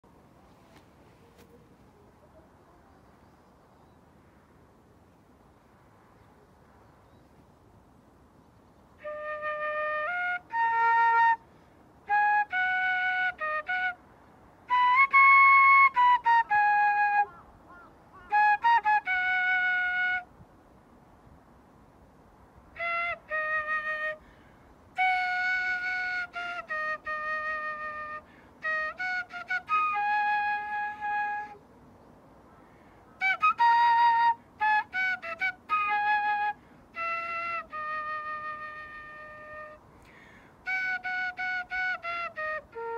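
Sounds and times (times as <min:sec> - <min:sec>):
wind instrument slow melody: 0:09.0 - 0:14.1, 0:14.7 - 0:20.4, 0:22.7 - 0:24.3, 0:25.0 - 0:31.6, 0:33.2 - 0:40.0, 0:40.6 - 0:42.9.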